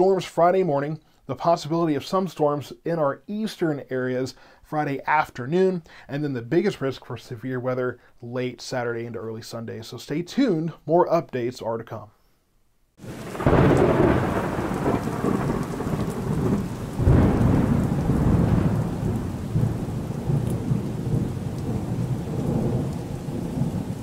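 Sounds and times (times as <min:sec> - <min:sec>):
rolling thunder: 0:13.0 - 0:24.0
steady rain: 0:13.0 - 0:24.0.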